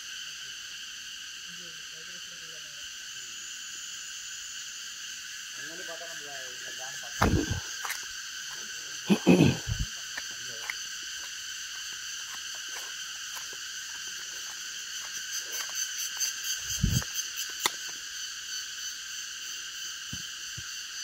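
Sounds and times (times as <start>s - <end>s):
forest insect chorus: 0.0s - 21.0s
dull thump: 7.2s - 7.7s.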